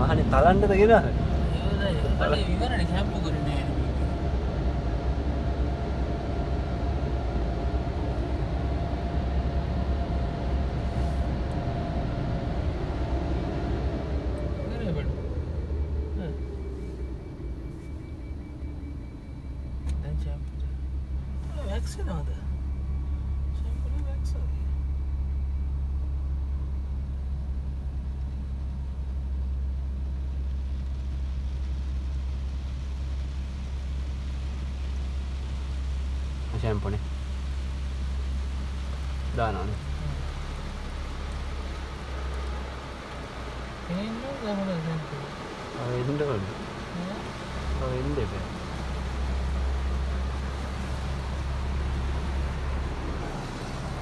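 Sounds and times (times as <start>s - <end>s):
car wash machine rumbling: 0.0s - 54.0s
water spraying on windshield: 7.3s - 13.8s, 29.8s - 54.0s.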